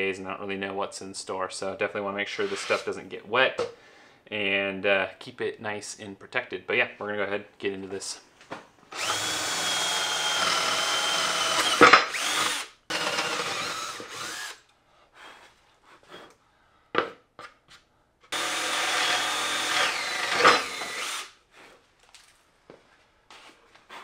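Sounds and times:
drill whining through wood: 8.9 - 14.6, 18.3 - 21.4.

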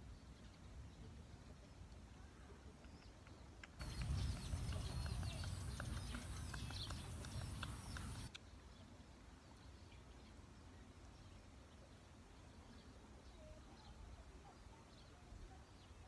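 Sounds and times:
wind buffeting microphone: 3.8 - 8.4.

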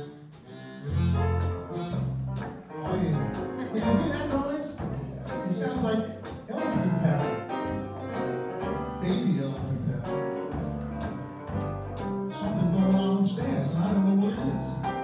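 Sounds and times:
small jazz band playing: 0.0 - 15.0
bass harmonica buzzy low notes: 0.7 - 5.3
drum hits: 0.9 - 15.0.

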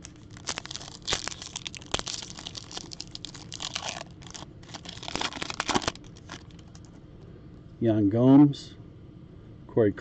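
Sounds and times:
wrapper tearing and crinkling: 0.0 - 6.9.

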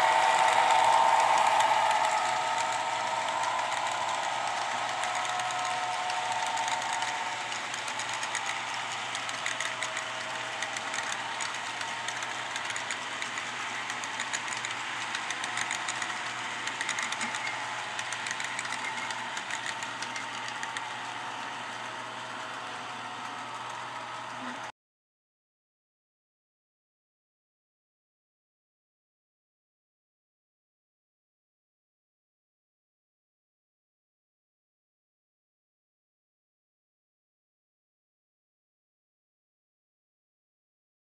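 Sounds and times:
whine: 0.0 - 22.2
model train wheels clattering on rails: 0.0 - 24.7.

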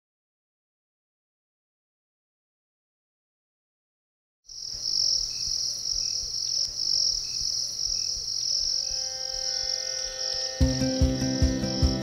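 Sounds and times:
crickets trilling: 4.5 - 12.0
soft sustained music notes: 8.8 - 12.0.

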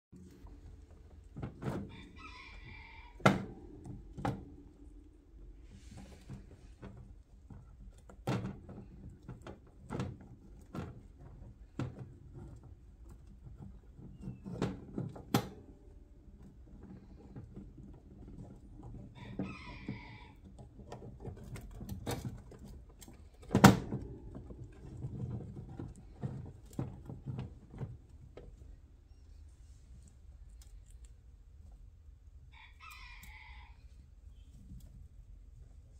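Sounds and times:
wire cage knocks and clicks: 20.6 - 28.6.

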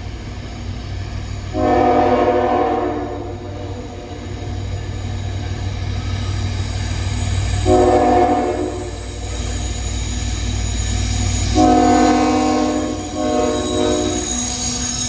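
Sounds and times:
train rumble: 0.0 - 15.0
locomotive air horn blasts: 1.5 - 3.8, 7.6 - 9.0, 11.5 - 14.3.

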